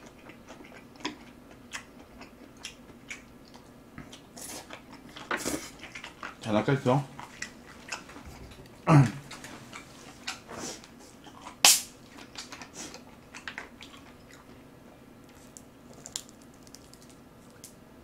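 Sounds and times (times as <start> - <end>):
quiet chewing: 0.0 - 17.8.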